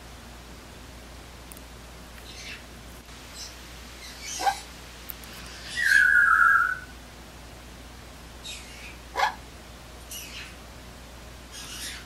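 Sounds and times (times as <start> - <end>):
parrot whistling: 5.6 - 6.9.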